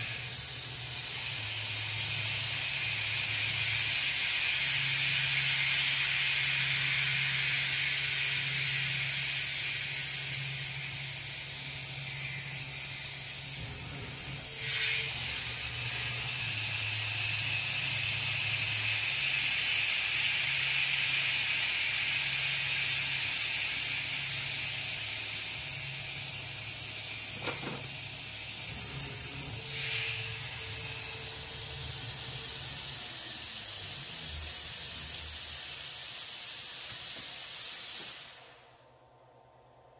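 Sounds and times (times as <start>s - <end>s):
coolant spray hiss: 0.0s - 38.9s
low motor hum: 13.4s - 16.7s, 27.3s - 35.2s.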